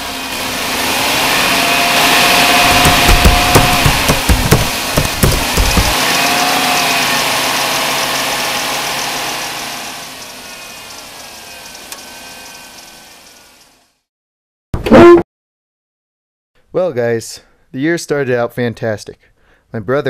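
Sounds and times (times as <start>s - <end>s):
vehicle engine running: 0.0s - 14.1s.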